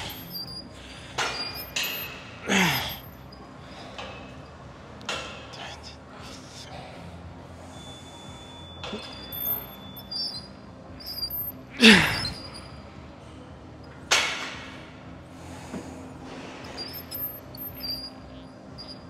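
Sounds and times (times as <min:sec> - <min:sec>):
gym equipment clanking: 0:00.0 - 0:03.3, 0:08.6 - 0:12.6, 0:16.4 - 0:19.0
faint squeaks: 0:00.0 - 0:14.7, 0:15.4 - 0:19.0
person grunting with effort: 0:02.5 - 0:03.0, 0:11.8 - 0:12.4.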